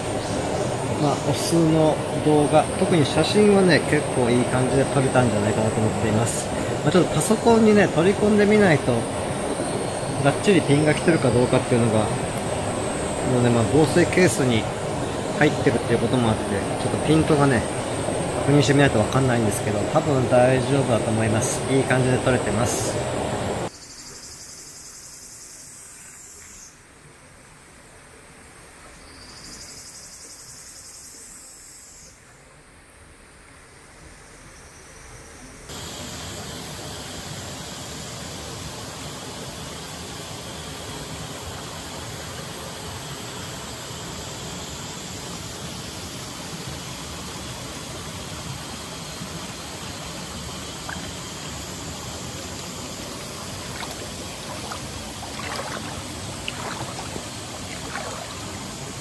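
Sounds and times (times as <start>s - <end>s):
thin high hiss: 23.7s - 26.9s, 29.0s - 32.5s
stream flowing over rocks: 49.2s - 59.0s
faint splashes: 52.7s - 59.0s.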